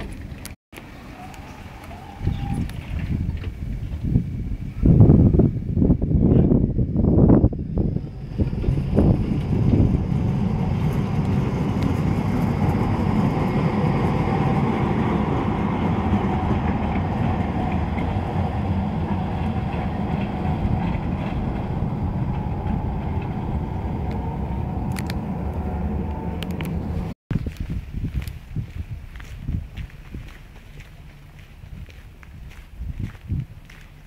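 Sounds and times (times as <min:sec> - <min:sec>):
tram rumbling on rails: 0:00.0 - 0:27.2.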